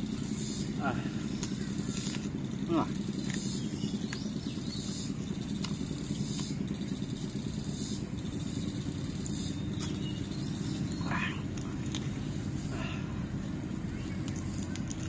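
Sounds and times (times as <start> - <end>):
low mechanical hum: 0.0 - 15.0
faint chewing clicks: 14.0 - 15.0.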